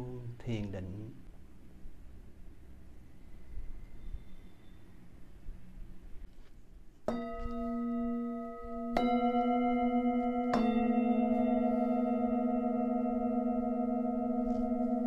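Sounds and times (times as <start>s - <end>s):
singing bowls ringing: 7.1s - 15.0s.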